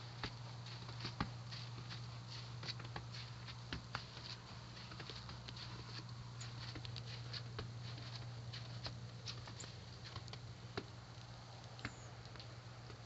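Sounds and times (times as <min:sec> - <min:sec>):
steady low hum: 0:00.0 - 0:13.0
light ticks and taps: 0:00.2 - 0:13.0.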